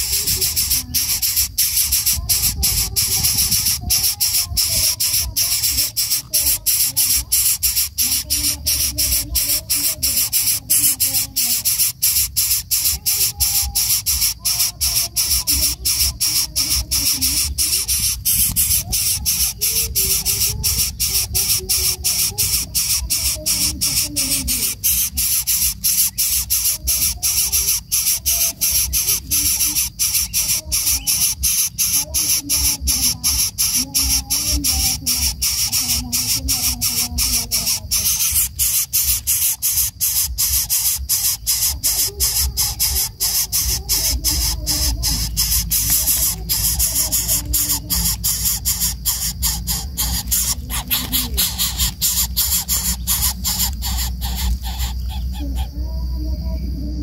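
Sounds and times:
nestlings hissing: 0:00.0 - 0:56.0.

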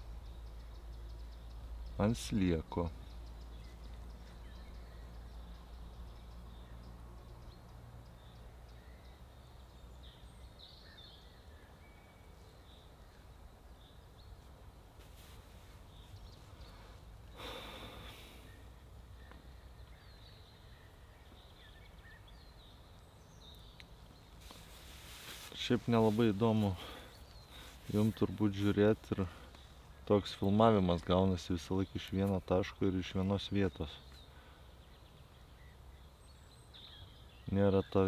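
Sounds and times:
faint bird chirps: 0:00.0 - 0:38.0
breathy rustle: 0:24.4 - 0:29.7.

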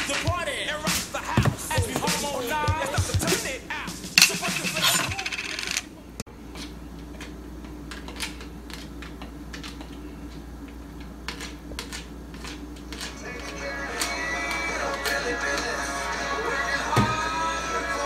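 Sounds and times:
music with singing: 0:00.0 - 0:05.4, 0:13.1 - 0:18.0.

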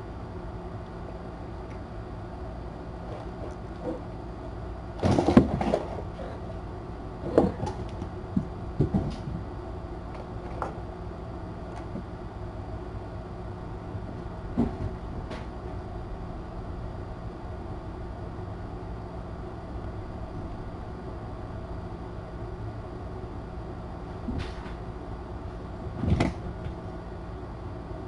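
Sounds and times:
steady low hum: 0:00.0 - 0:28.0
kittens bumping and knocking: 0:05.0 - 0:06.1, 0:07.2 - 0:09.4, 0:14.5 - 0:15.6, 0:25.9 - 0:26.8.

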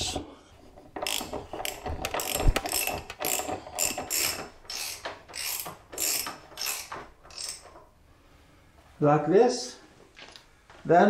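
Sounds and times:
ratchet wrench clicking: 0:01.0 - 0:07.6.

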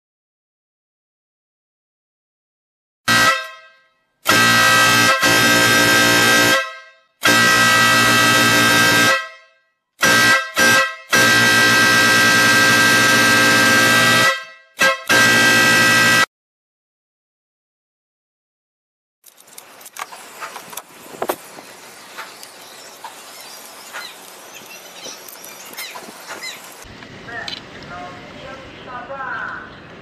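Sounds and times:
electric air horn blasts: 0:03.1 - 0:16.3.

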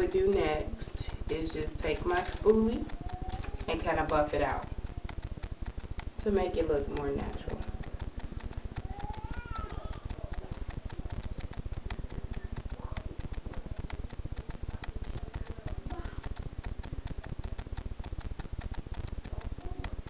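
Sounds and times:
rapid clicking or crackling: 0:00.0 - 0:20.0
faint hum of voice: 0:08.8 - 0:17.8, 0:19.3 - 0:20.0.

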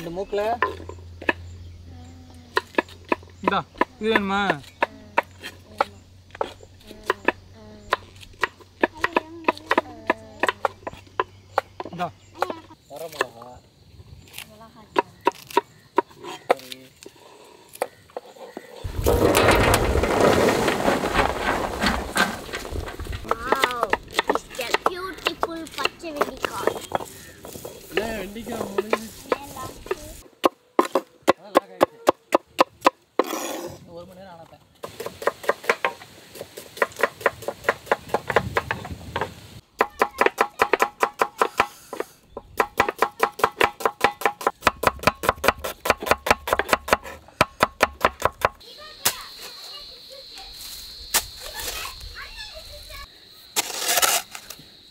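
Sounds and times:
knife chopping on wooden board: 0:39.8 - 0:48.6.

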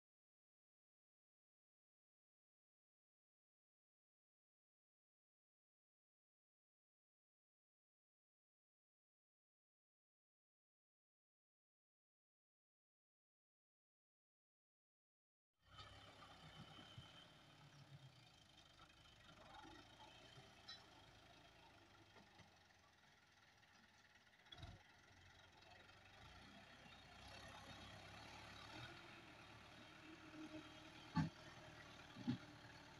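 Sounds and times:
tractor diesel engine running: 0:15.7 - 0:32.9.

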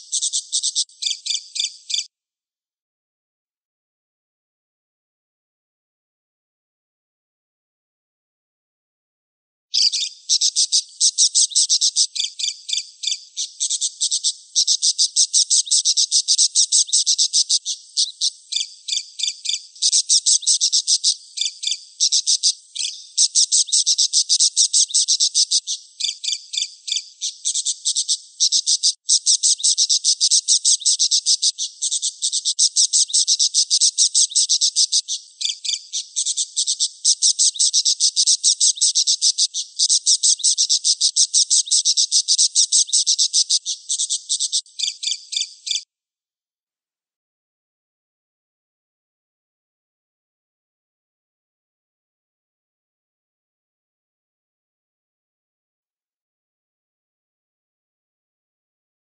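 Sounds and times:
budgerigar chattering: 0:00.0 - 0:02.1, 0:09.8 - 0:45.8.

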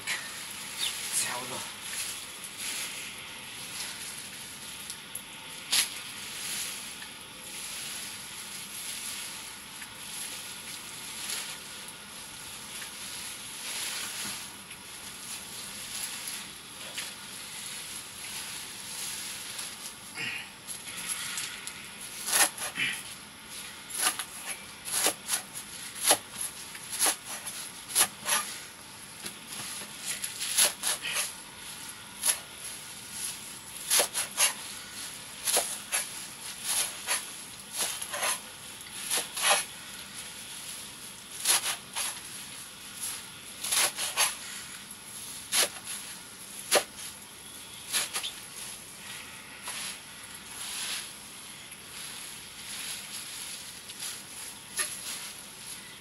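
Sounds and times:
blade chopping nettle: 0:33.9 - 0:34.6.

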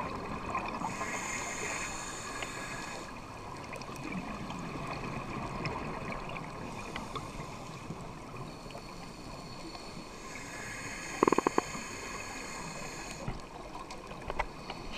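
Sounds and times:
steady water: 0:00.0 - 0:14.9.

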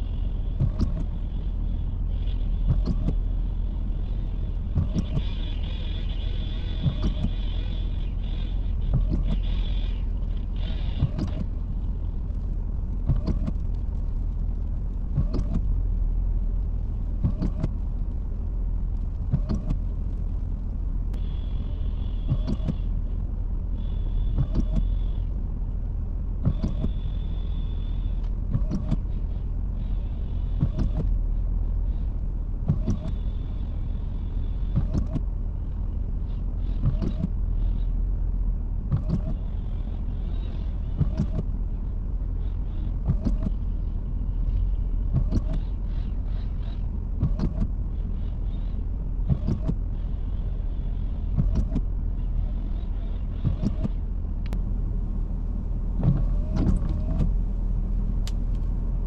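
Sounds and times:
truck engine running: 0:00.0 - 0:59.0
engine knocking: 0:00.5 - 0:01.2, 0:02.4 - 0:03.3, 0:04.7 - 0:11.6, 0:15.1 - 0:15.7, 0:17.2 - 0:17.8, 0:19.3 - 0:19.8, 0:21.2 - 0:23.0, 0:23.9 - 0:25.2, 0:28.5 - 0:31.2, 0:32.6 - 0:33.4, 0:34.7 - 0:35.3, 0:36.6 - 0:37.8, 0:38.9 - 0:41.5, 0:42.4 - 0:43.7, 0:45.1 - 0:51.9, 0:52.7 - 0:54.0.

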